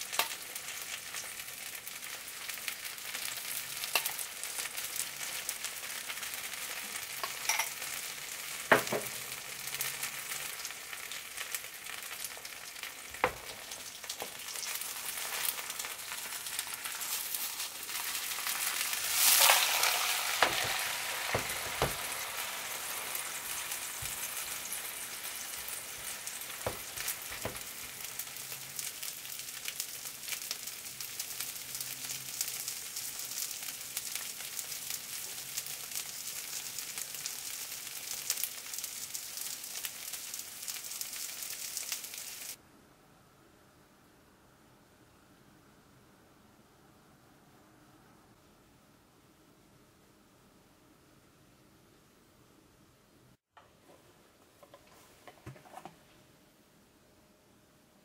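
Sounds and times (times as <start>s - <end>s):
pancake sizzling in oil: 0.0s - 42.6s.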